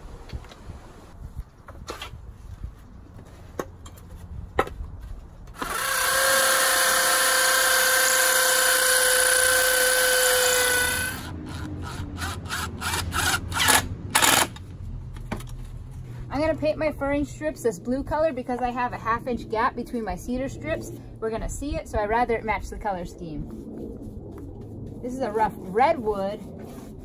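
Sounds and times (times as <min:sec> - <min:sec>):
hammer drill boring into concrete: 0:05.6 - 0:14.6
impact driver rattling: 0:12.8 - 0:14.7.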